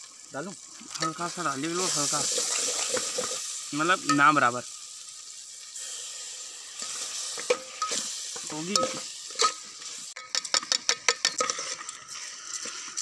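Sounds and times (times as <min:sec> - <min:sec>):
masala sizzling in a pot: 0:00.0 - 0:13.0
ladle scraping metal pot: 0:06.8 - 0:13.0.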